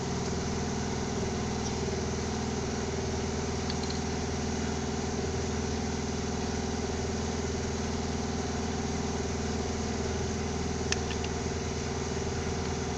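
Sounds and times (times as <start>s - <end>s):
engine idling: 0.0s - 12.9s
sharp click: 3.6s - 4.0s, 10.9s - 11.4s.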